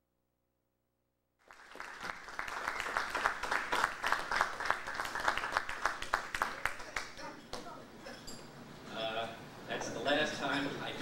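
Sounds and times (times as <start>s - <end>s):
audience applause: 1.4s - 7.2s.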